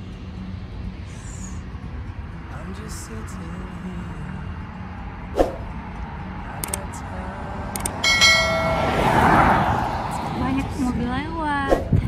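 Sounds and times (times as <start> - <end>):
rush of noise: 3.1 - 11.0
bright bell chime: 8.0 - 9.2.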